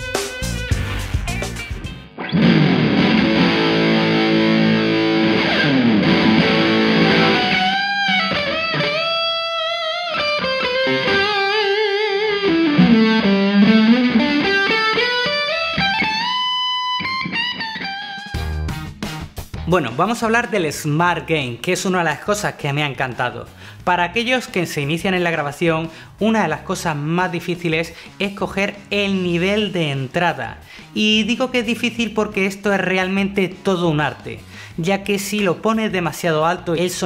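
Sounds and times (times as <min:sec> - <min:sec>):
distorted electric guitar: 0:00.0 - 0:21.6.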